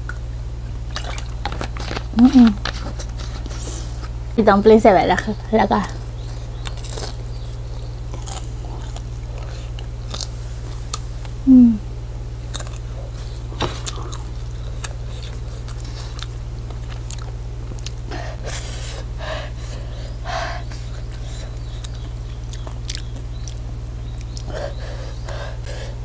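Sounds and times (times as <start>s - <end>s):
low hum: 0.0s - 26.0s
close chewing: 0.8s - 4.2s, 5.1s - 11.4s, 12.3s - 26.0s
person humming mm: 11.4s - 11.9s
breathy mouth puffs: 18.0s - 22.1s, 24.3s - 26.0s.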